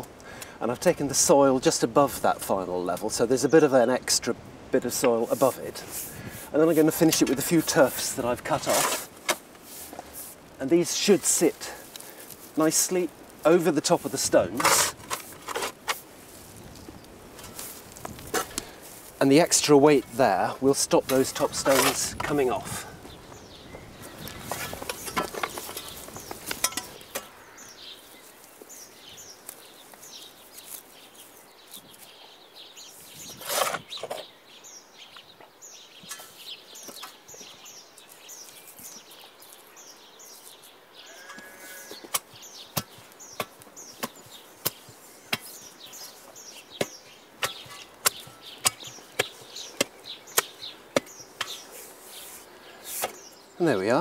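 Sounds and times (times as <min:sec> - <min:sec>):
rustling of turf being handled: 0:04.8 - 0:23.3, 0:24.0 - 0:32.2, 0:36.3 - 0:40.8, 0:41.8 - 0:54.0
small bird singing: 0:18.6 - 0:54.0
shovel slapping turf: 0:46.8 - 0:53.2.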